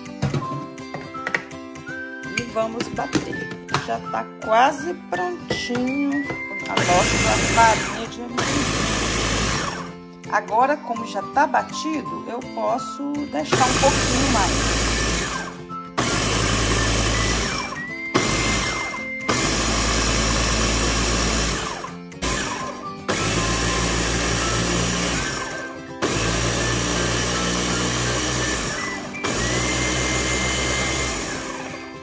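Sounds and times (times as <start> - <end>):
blender grinding: 6.4 - 10.0, 13.5 - 32.0.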